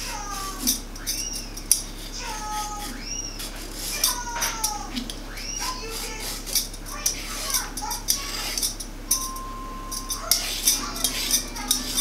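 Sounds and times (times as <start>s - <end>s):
high squeaky tones: 0.0s - 12.0s
vegetable peeler scraping squash: 0.0s - 12.0s.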